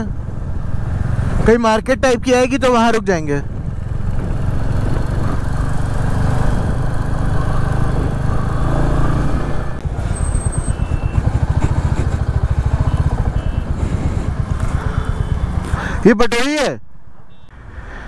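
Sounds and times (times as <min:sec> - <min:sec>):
wind noise: 0:03.4 - 0:15.9
motorcycle engine running: 0:03.4 - 0:16.0.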